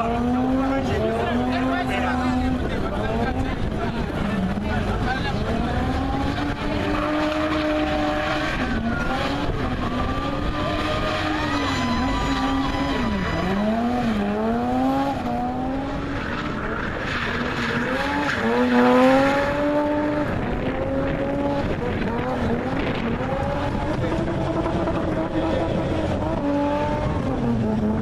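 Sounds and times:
car engine at high revs: 0.0 - 28.0
tyres screeching: 6.6 - 15.2.

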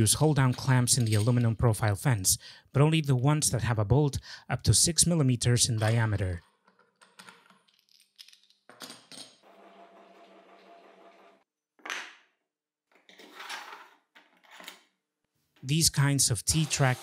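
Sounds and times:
clamps sliding in metal track: 9.6 - 11.4.

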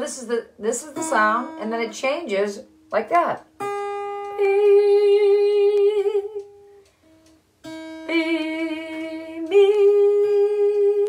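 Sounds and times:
woman singing: 0.0 - 3.4, 4.3 - 6.6, 8.0 - 11.0
acoustic guitar string plucked: 0.0 - 11.0.

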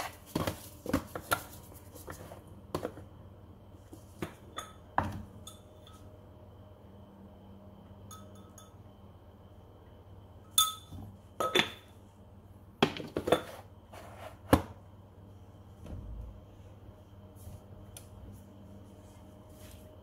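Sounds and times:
spoon clinking on ceramic dish: 8.1 - 8.8, 10.6 - 11.8.

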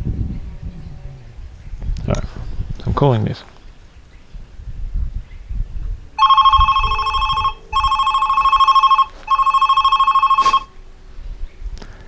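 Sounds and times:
warbling electronic ringtone: 6.2 - 10.7.

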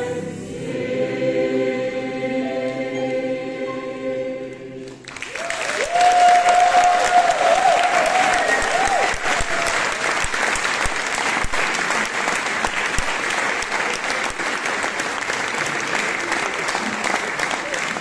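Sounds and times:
audience applauding: 4.9 - 18.0.

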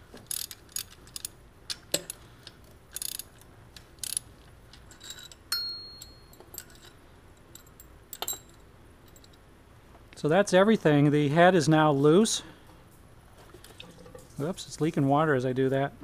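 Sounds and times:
socket ratchet clicking: 2.9 - 5.4
metal clinking: 2.9 - 9.4.

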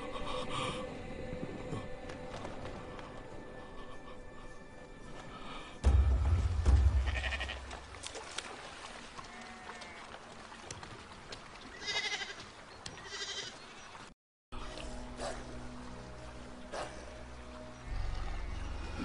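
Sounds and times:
sheep bleating: 7.0 - 7.7.

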